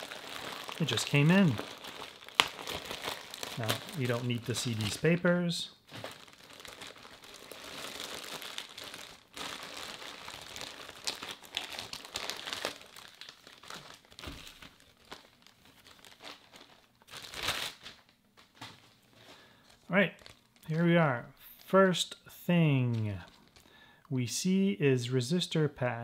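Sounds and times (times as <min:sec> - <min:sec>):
plastic bags crinkling: 0:00.0 - 0:20.9, 0:22.8 - 0:24.0.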